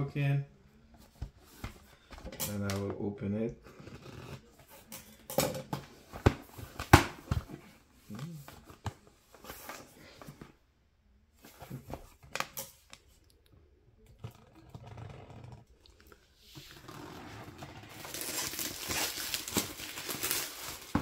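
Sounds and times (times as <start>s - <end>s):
packaging rustling: 16.6s - 21.0s.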